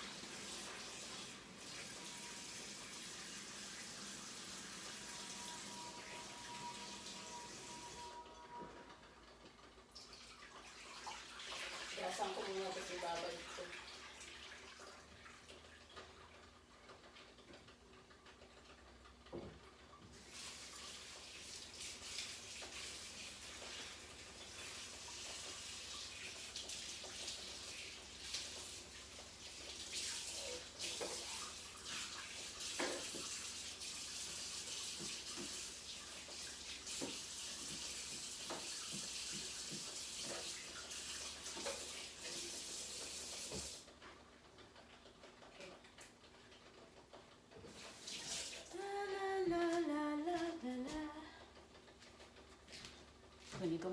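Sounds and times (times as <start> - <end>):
tap running into sink: 32.6 - 33.6, 36.3 - 43.8.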